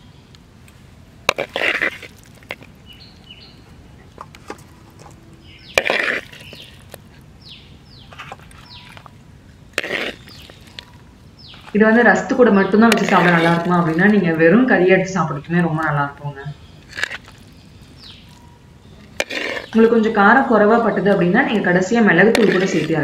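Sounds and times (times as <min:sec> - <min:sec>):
birds chirping: 0:01.6 - 0:23.0
spatula scraping a cooking pot: 0:05.7 - 0:07.0, 0:09.8 - 0:11.7, 0:12.9 - 0:14.2, 0:19.1 - 0:19.8, 0:22.2 - 0:23.0.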